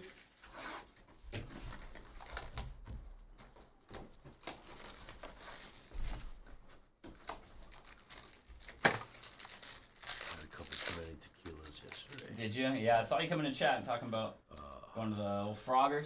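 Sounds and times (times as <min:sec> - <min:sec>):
plastic wrapping crinkling and tearing: 0:00.0 - 0:00.5, 0:01.3 - 0:06.5, 0:07.2 - 0:12.4.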